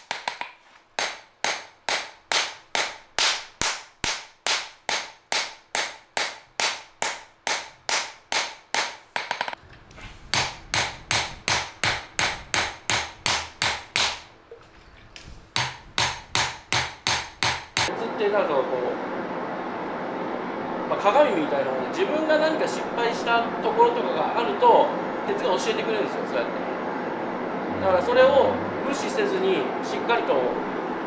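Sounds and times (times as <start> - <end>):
hammer striking metal on anvil: 0.0 - 9.6, 10.3 - 14.3, 15.6 - 17.9.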